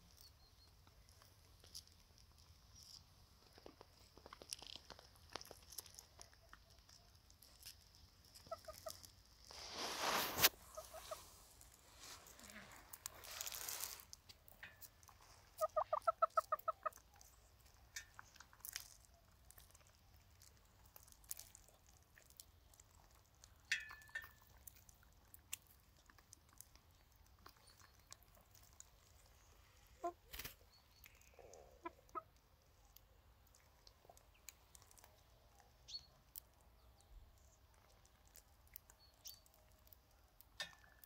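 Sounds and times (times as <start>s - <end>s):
hens clucking: 8.4s - 9.0s, 9.6s - 11.4s, 15.5s - 17.2s, 31.2s - 32.4s.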